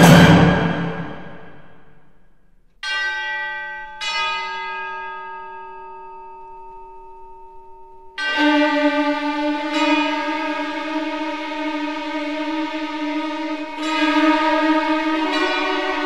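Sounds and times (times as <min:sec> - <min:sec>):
sustained orchestral chord: 0:00.0 - 0:01.7, 0:08.2 - 0:16.0
struck notes ringing: 0:08.2 - 0:16.0.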